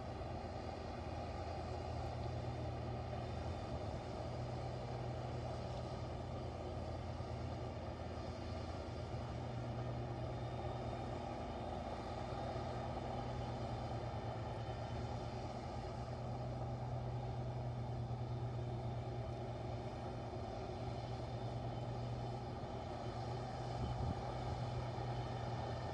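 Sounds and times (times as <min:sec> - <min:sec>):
snow blower cutting snow: 0:00.0 - 0:25.9
truck engine droning: 0:00.0 - 0:25.9.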